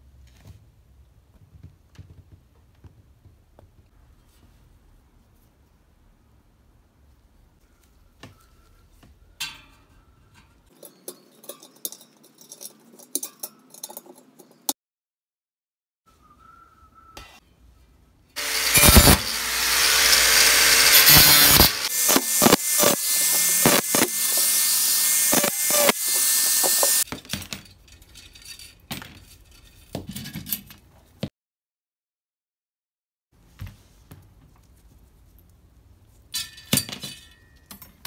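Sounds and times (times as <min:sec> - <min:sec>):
faint metal clinks and knocks: 0:09.4 - 0:14.7, 0:27.1 - 0:30.9
angle grinder cutting metal: 0:18.4 - 0:27.1.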